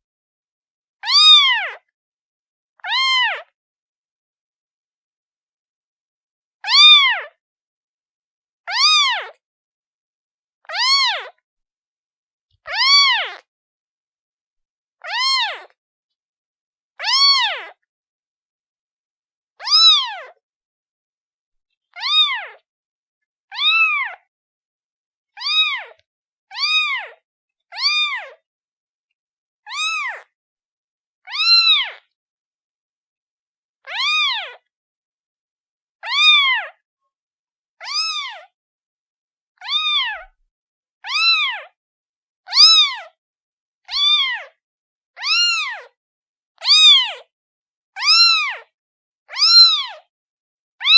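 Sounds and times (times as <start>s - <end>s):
kitten meowing: 1.0s - 1.8s, 2.8s - 3.5s, 6.6s - 7.3s, 8.7s - 9.4s, 10.7s - 11.3s, 12.7s - 13.5s, 15.0s - 15.8s, 17.0s - 17.8s, 19.6s - 20.4s, 21.9s - 22.6s, 23.5s - 24.3s, 25.4s - 28.4s, 29.7s - 30.3s, 31.3s - 32.0s, 33.9s - 34.7s, 36.0s - 36.8s, 37.8s - 38.5s, 39.6s - 40.4s, 41.0s - 41.8s, 42.5s - 43.2s, 43.9s - 44.6s, 45.2s - 46.0s, 46.6s - 47.2s, 48.0s - 48.7s, 49.3s - 50.0s.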